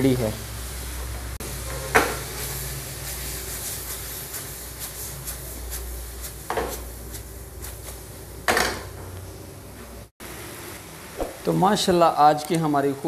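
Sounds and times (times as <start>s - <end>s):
spatula scraping a wok: 1.4s - 8.0s.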